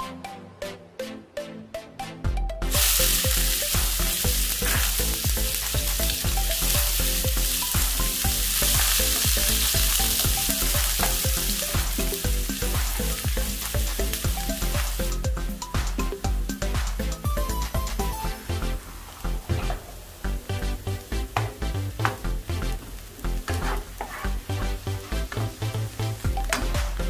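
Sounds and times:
background music with beat: 0.0 - 27.0
onions sizzling in oil: 2.6 - 27.0
spatula stirring in pan: 3.0 - 15.1, 23.4 - 26.3.

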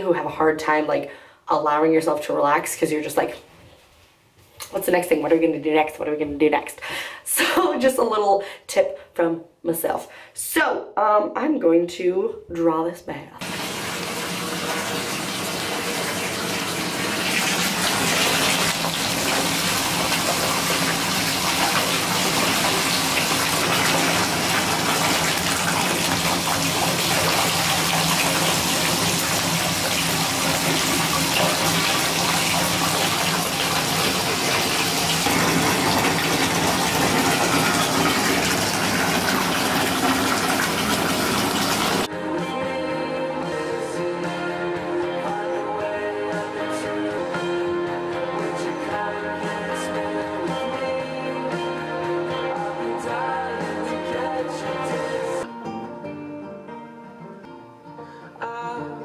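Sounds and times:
water gushing into tub: 13.4 - 42.1.

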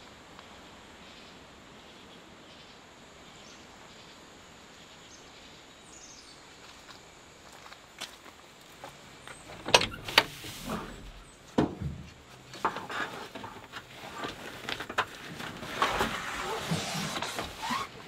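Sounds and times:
bags and fabric rustling: 12.8 - 18.0.

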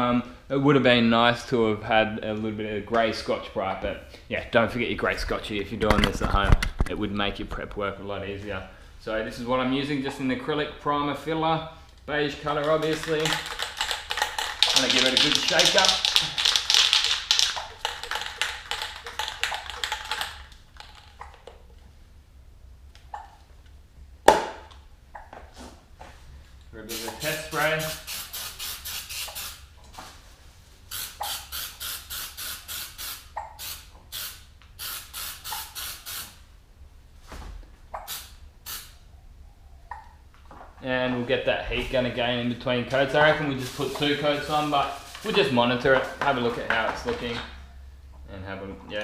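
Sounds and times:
spray can ball rattling: 12.5 - 21.6, 26.9 - 29.6, 30.9 - 36.4, 38.1 - 38.9
aerosol can spraying: 26.9 - 29.6, 30.9 - 36.4, 38.1 - 39.0.

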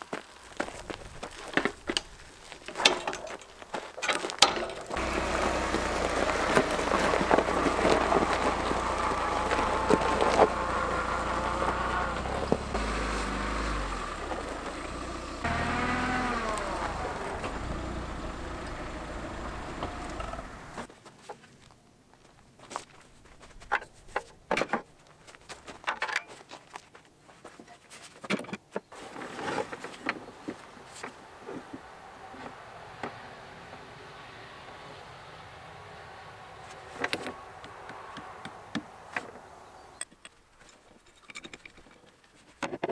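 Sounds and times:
metal clanks and knocks: 2.7 - 5.0
buggy engine running: 4.7 - 20.9, 29.0 - 40.0.

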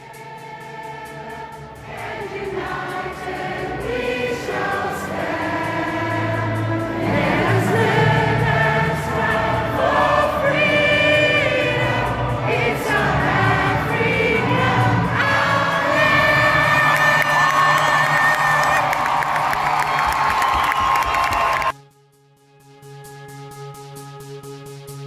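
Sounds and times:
crowd singing an anthem: 0.0 - 19.9.

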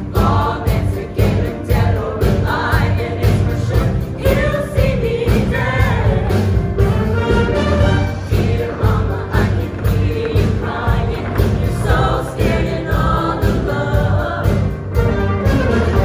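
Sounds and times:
choir singing: 0.0 - 16.0
musical accompaniment with steady beat: 0.0 - 16.0.

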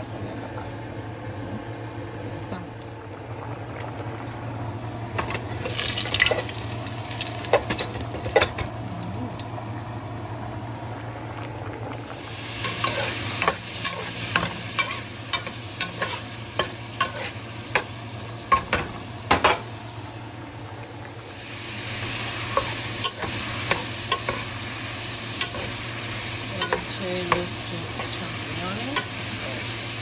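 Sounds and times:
garlic and shrimp sizzling in oil: 3.1 - 30.0
spoon clicking and scraping pan: 12.6 - 17.9, 22.5 - 24.4, 25.4 - 25.7, 26.6 - 28.1.

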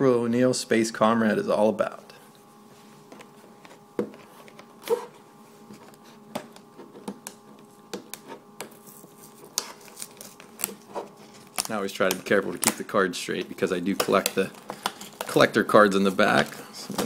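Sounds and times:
plastic blister crackling and clicking: 9.5 - 17.0.

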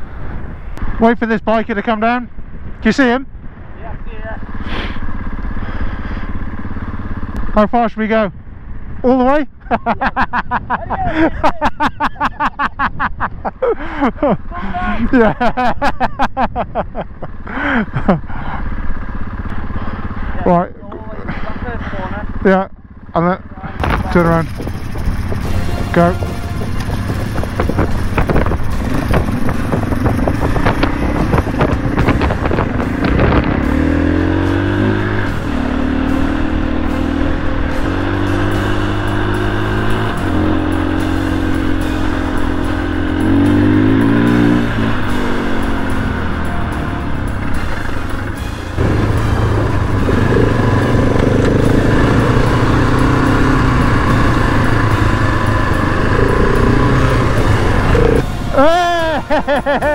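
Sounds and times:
motorcycle engines revving: 0.0 - 59.9
wind buffeting microphone: 23.8 - 34.7.

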